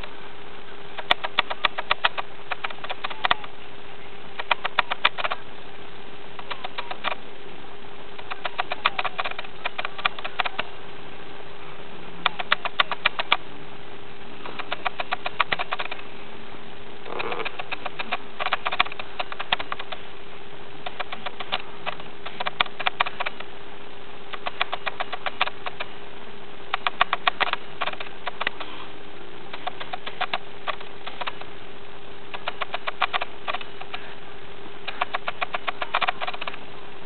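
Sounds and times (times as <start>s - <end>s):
faint hum: 0.0s - 37.0s
cat claws scrabbling: 4.4s - 5.4s, 14.5s - 16.0s, 17.1s - 20.0s, 20.9s - 23.5s, 29.6s - 31.5s, 32.4s - 34.0s, 34.9s - 36.6s.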